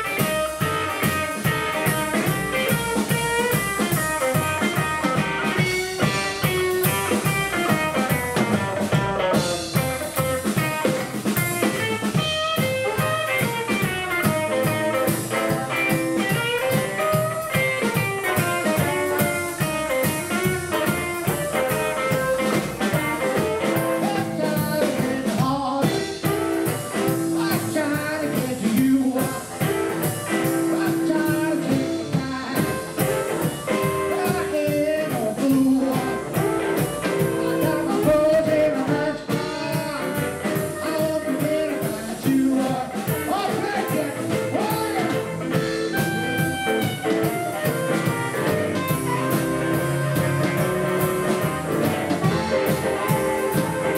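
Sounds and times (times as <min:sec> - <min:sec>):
blues band playing: 0:00.0 - 0:53.9
electric guitar lead line: 0:00.0 - 0:53.9.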